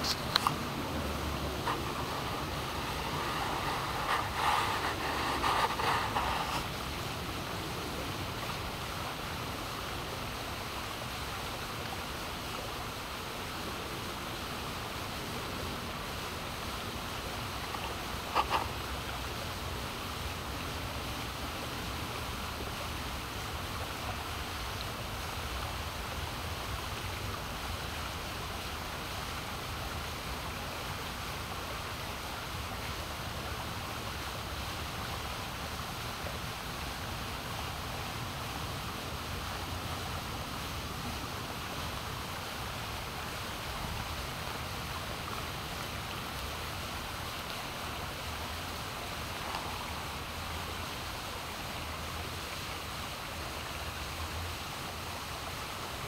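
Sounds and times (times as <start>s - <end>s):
water swirling down a drain: 0.0s - 6.8s.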